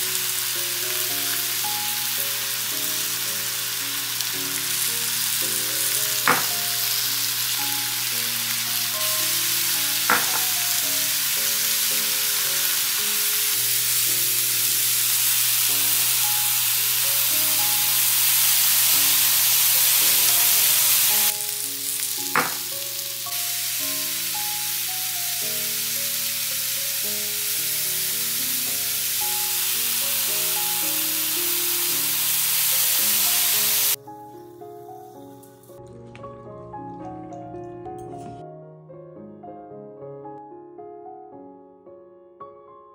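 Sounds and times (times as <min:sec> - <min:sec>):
food sizzling on griddle: 0:00.0 - 0:34.0
background music: 0:00.0 - 0:42.9.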